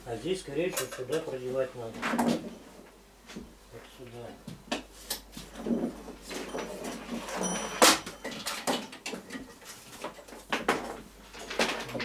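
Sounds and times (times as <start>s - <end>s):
plastic scraping and clattering: 5.6s - 12.0s.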